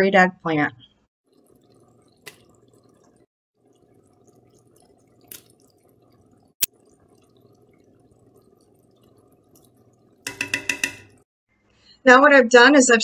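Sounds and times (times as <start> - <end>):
pot simmering with bubbling pops: 1.2 - 11.3.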